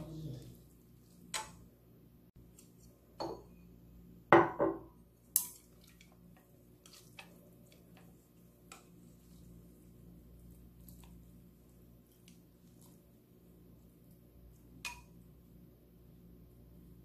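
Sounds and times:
dishes clinking and knocking: 3.2s - 3.6s, 4.4s - 4.9s.

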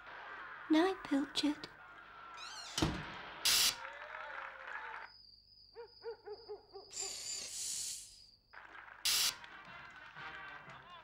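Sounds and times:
owl hooting: 5.8s - 8.1s
short hissing burst: 7.0s - 8.3s.

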